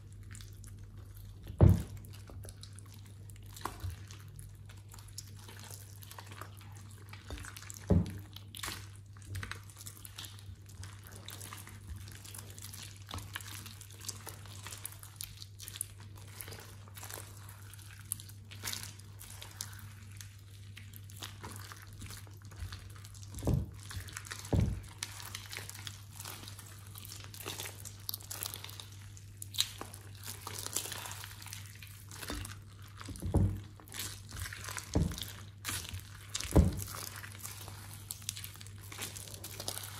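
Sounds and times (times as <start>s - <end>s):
slime squelching and popping: 0.0s - 39.9s.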